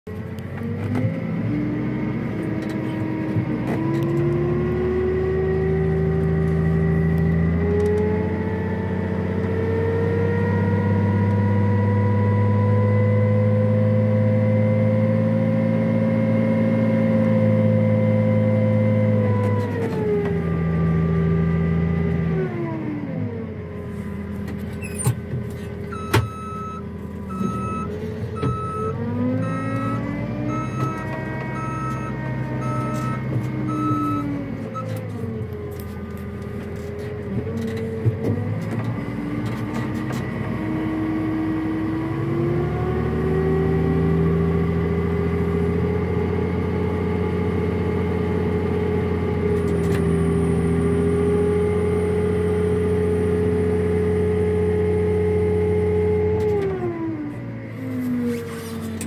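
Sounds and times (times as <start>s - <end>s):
diesel engines under load: 0.1s - 59.0s
reversing alarm beeping: 25.9s - 35.0s.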